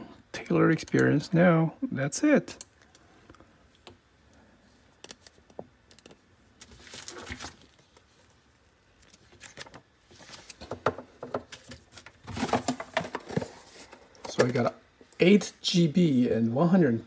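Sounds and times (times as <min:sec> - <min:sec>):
paper rustling: 0:05.1 - 0:10.8.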